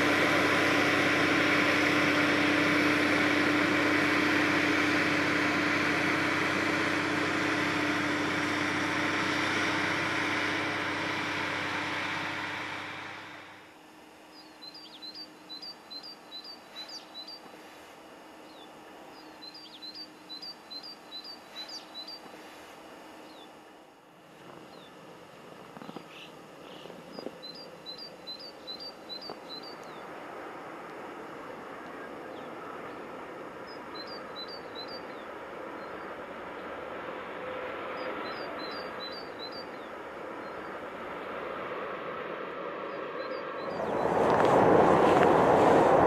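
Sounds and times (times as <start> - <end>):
snow blower engine: 0.0 - 13.8, 43.7 - 46.0
bird chirping: 14.3 - 17.5, 18.4 - 22.4, 25.8 - 30.1, 33.6 - 36.1, 38.0 - 40.8, 42.9 - 44.2
snow rushing from chute: 43.7 - 46.0.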